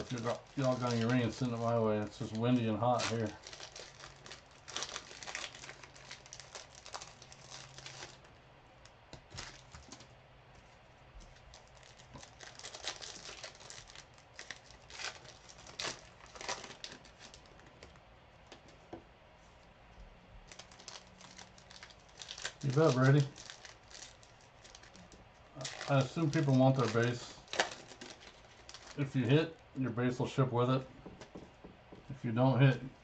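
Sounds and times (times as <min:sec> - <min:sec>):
card pack wrappers tearing and crinkling: 0:00.0 - 0:08.3, 0:09.2 - 0:10.1, 0:11.3 - 0:18.0, 0:20.5 - 0:29.4.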